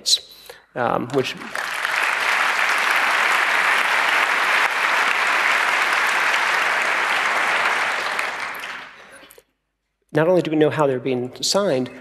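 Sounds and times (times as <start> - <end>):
audience applause: 1.1 - 9.2.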